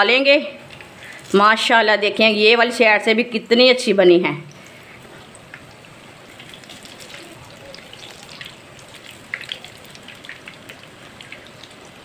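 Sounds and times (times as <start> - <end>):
oil popping: 4.5 - 12.0.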